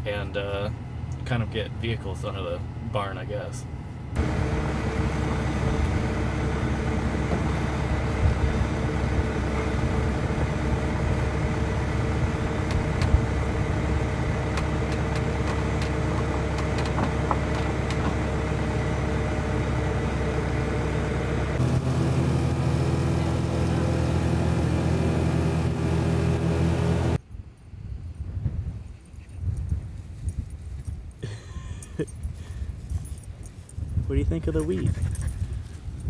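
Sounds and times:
engine idling: 0:00.0 - 0:27.2
utility vehicle engine running: 0:00.0 - 0:27.2
wooden crate knocking on wood: 0:15.5 - 0:18.2.

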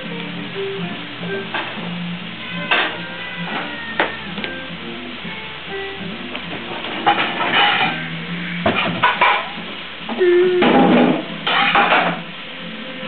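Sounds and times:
guitar music: 0:00.0 - 0:13.0
scraping clattering noise: 0:06.5 - 0:09.7, 0:10.6 - 0:12.2.

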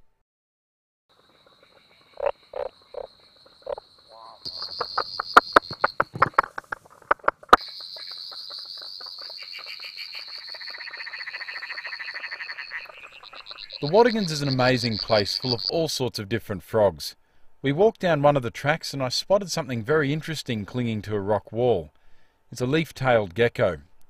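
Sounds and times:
frog clicking: 0:01.2 - 0:15.7
whirring frog trill: 0:01.2 - 0:15.7
deep frog knocks: 0:04.5 - 0:07.6.

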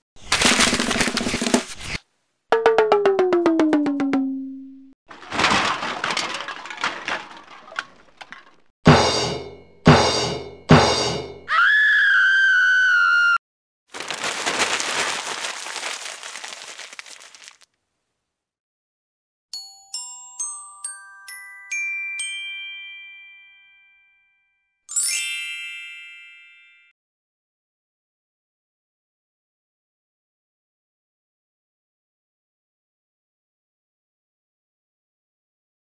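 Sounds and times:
glockenspiel-like notes: 0:19.5 - 0:26.9.

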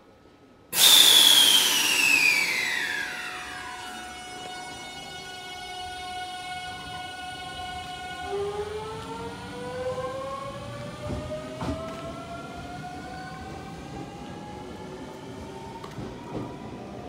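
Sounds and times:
electric train motor whine rising: 0:00.8 - 0:11.0.

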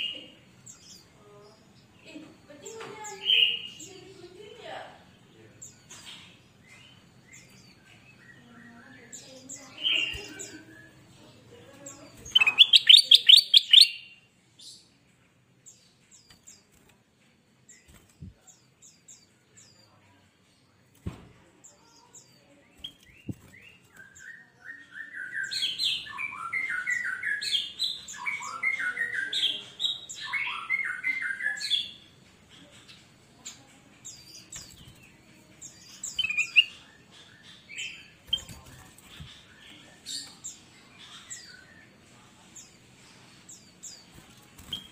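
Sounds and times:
bird chirping and trilling: 0:03.0 - 0:04.2, 0:11.9 - 0:14.8, 0:21.9 - 0:32.1, 0:35.6 - 0:41.9, 0:43.6 - 0:44.9.

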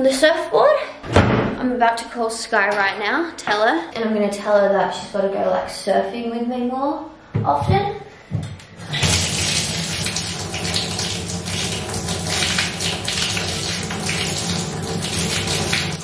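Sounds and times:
water pouring into bathtub: 0:08.8 - 0:16.0.

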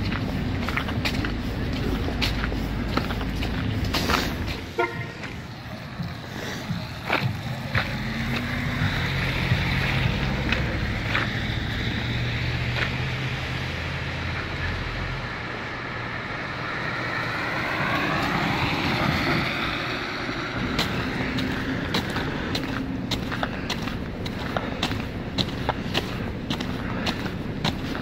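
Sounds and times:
footsteps on wet pavement: 0:00.0 - 0:14.6, 0:16.5 - 0:28.0
low engine hum: 0:00.0 - 0:28.0
car sweeping past: 0:15.9 - 0:22.5.

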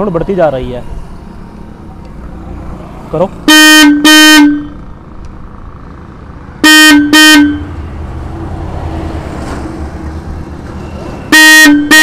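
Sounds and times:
electric horn toots: 0:03.5 - 0:04.8, 0:06.6 - 0:07.7, 0:11.3 - 0:12.0.

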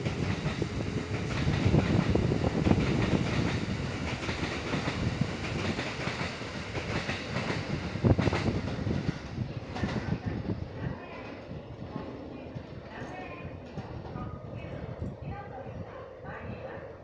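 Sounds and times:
heavy rail knock: 0:00.0 - 0:10.5
train wheels clacking on rails: 0:00.0 - 0:10.5.

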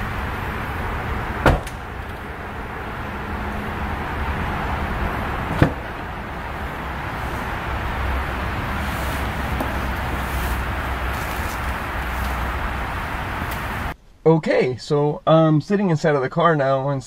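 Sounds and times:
steady background noise: 0:00.0 - 0:14.4
car door shutting thump: 0:01.4 - 0:01.8, 0:05.5 - 0:06.0
car door latch click: 0:05.5 - 0:05.8.

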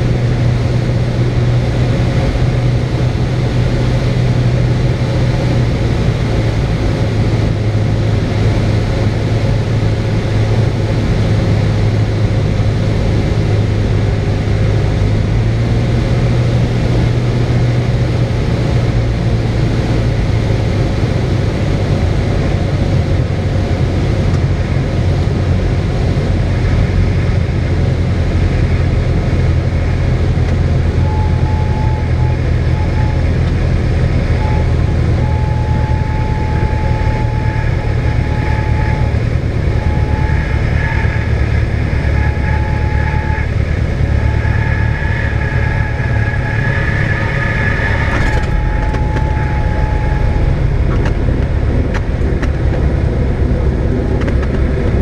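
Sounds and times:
aircraft engine droning: 0:00.0 - 0:55.0
on-and-off high tone: 0:31.0 - 0:33.5, 0:34.2 - 0:52.2.

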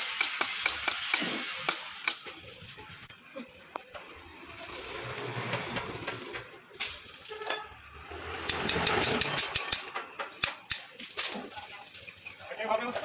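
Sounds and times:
metal engine parts clinking: 0:08.5 - 0:13.0.

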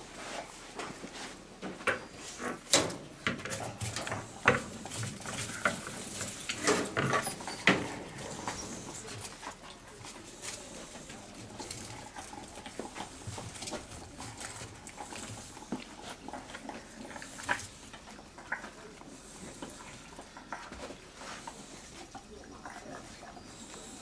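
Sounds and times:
lizard eating clicks and crunches: 0:08.0 - 0:24.0.

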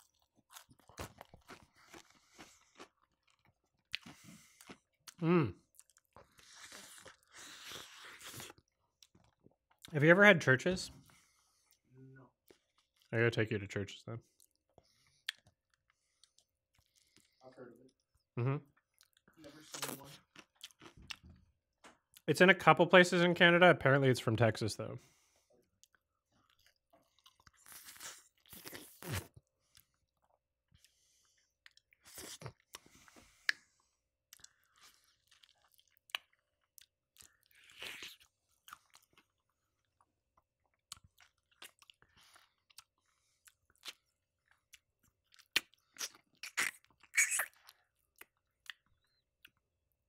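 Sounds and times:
crunchy chewing of fried chicken: 0:00.0 - 0:09.9, 0:18.9 - 0:21.3, 0:25.2 - 0:49.8
wet mouth clicks: 0:45.4 - 0:48.8.

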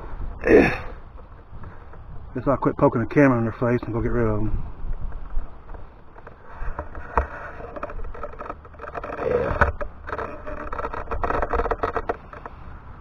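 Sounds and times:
scraping and rustling: 0:03.5 - 0:12.9.

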